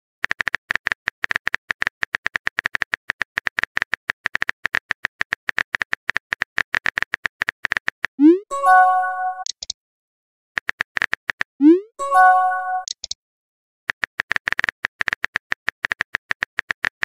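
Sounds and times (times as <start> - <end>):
multi-tone chime: 8.3 - 9.5, 11.8 - 12.9.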